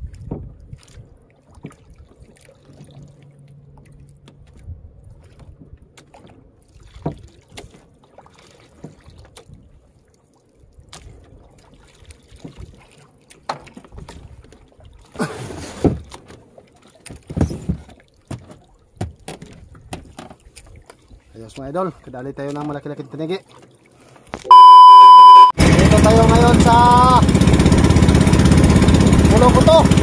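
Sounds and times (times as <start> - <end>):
knocks and thumps on boat hull: 0.1 - 0.8, 7.0 - 7.7, 17.0 - 20.5.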